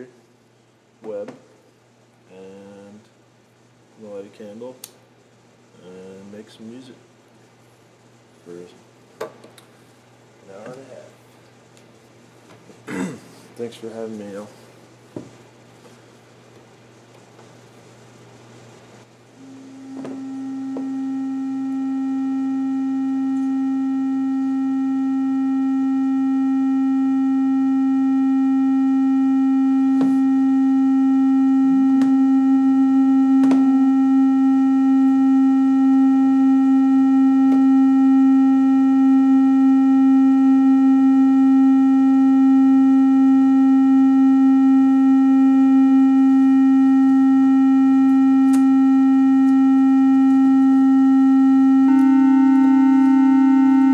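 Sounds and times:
electric organ drone note: 19.4s - 53.9s
fainter higher organ note: 43.4s - 53.9s.

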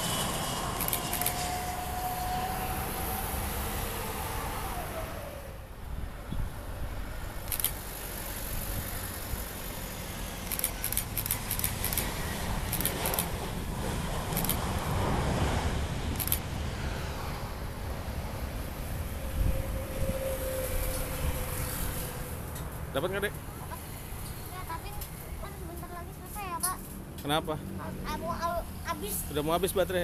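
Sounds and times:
jet engine whine falling: 0.0s - 5.6s
jet rushing roar on runway: 0.0s - 24.3s
cars passing: 0.0s - 30.0s.

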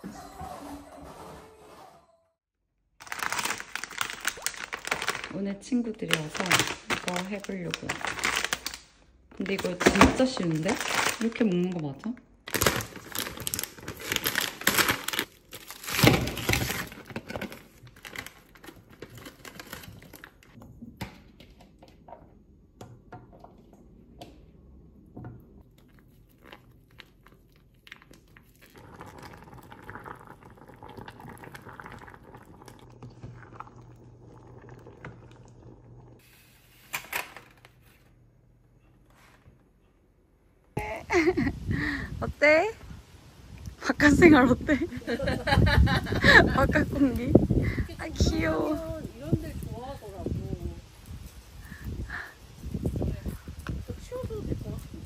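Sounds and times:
packets rustling and clicking: 3.0s - 5.4s, 6.0s - 20.6s
plastic bag tearing and crinkling: 3.0s - 20.6s.

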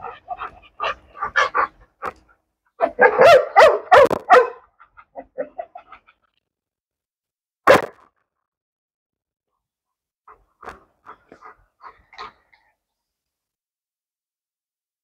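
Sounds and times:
dog barking and yelping: 0.0s - 6.3s, 11.1s - 12.4s.

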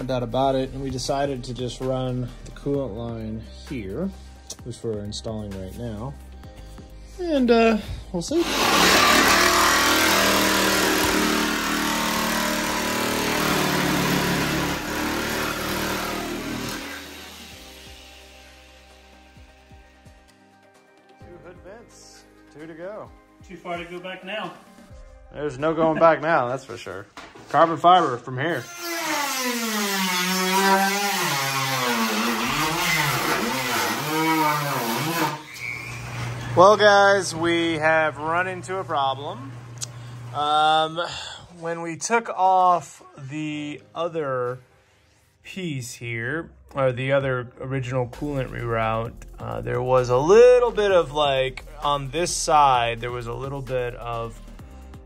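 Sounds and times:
electric power tool running: 8.4s - 19.2s, 28.6s - 36.6s.

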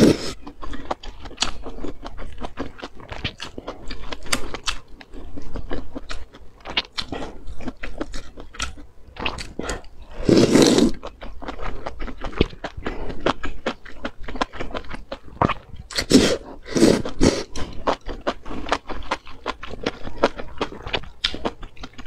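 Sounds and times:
slurping noodles: 0.0s - 0.4s, 9.5s - 11.0s, 16.0s - 17.9s
chewing with wet mouth clicks: 0.0s - 10.0s, 10.9s - 22.0s.

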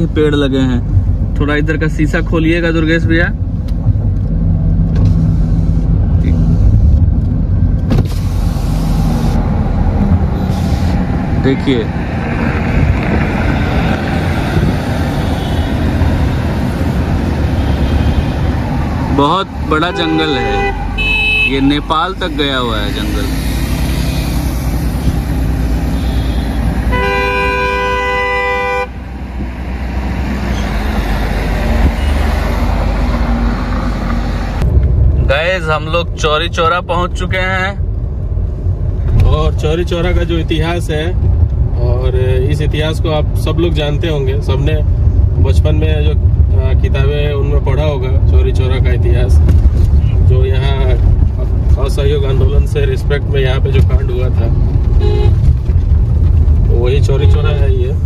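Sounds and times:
car engine and road rumble: 0.0s - 58.0s
vehicle horn blast: 19.7s - 21.9s, 25.9s - 29.0s, 55.0s - 55.4s.

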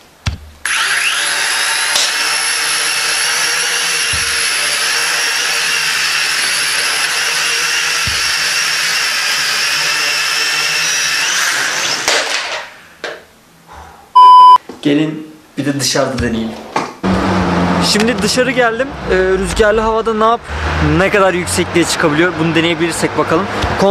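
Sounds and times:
toy drone motors whining: 0.6s - 12.1s.

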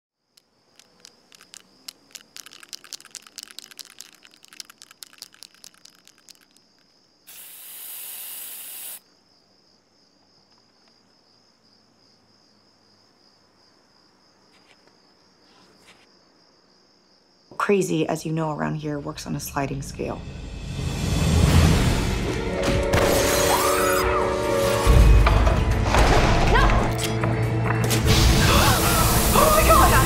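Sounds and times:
crickets chirring: 0.2s - 20.4s
spray can rattling as shaken: 0.7s - 9.0s
spray can hissing: 0.8s - 6.6s, 7.3s - 9.0s.

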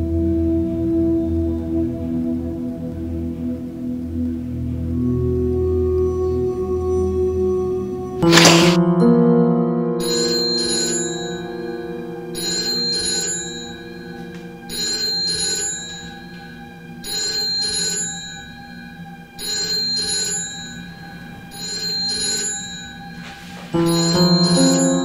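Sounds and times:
low musical drone: 0.0s - 25.0s
mobile phone ringing: 8.2s - 8.8s, 10.0s - 25.0s.

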